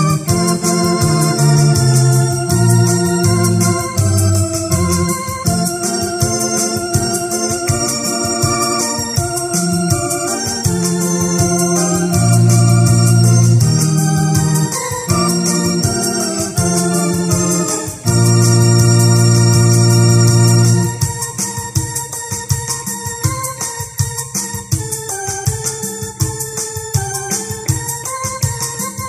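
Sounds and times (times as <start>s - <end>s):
hymn tune on keyboard organ voice: 0.0s - 29.0s.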